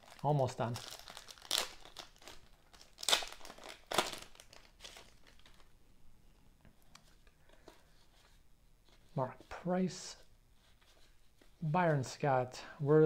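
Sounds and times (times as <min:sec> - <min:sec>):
cards rustling: 0:00.0 - 0:05.7
wrapper crinkling and tearing: 0:00.0 - 0:05.7.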